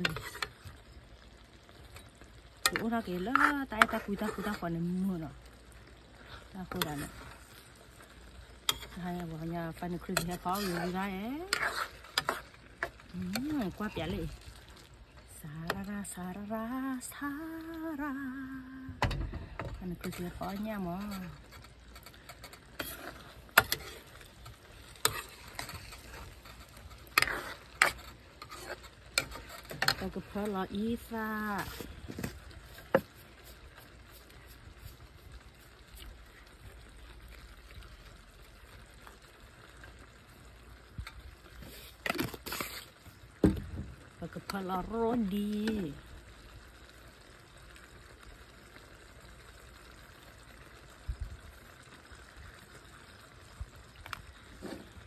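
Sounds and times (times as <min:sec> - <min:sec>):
spoon scraping bowl: 0:00.0 - 0:00.6, 0:02.7 - 0:04.7, 0:10.1 - 0:14.2, 0:20.0 - 0:30.6, 0:31.5 - 0:35.0.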